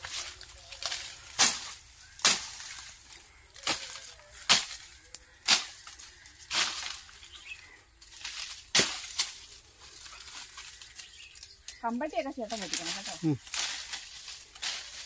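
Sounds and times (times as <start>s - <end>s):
billhook slashing through weeds: 0.1s - 2.9s, 3.6s - 7.1s, 8.1s - 11.8s.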